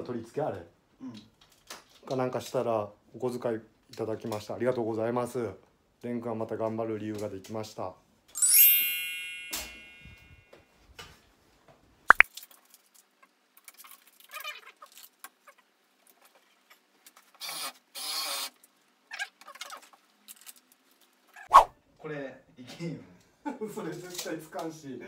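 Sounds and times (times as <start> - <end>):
chime ringing: 8.4 - 10.5.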